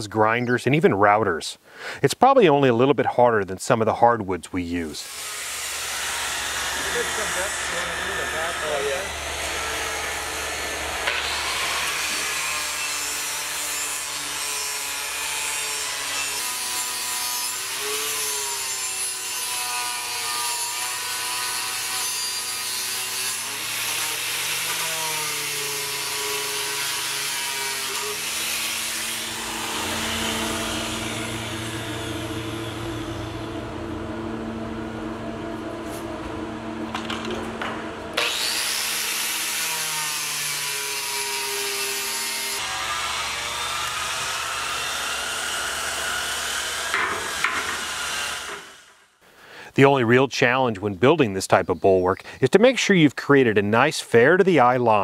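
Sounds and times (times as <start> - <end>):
angle grinder grinding metal: 5.0 - 35.0, 38.2 - 49.0.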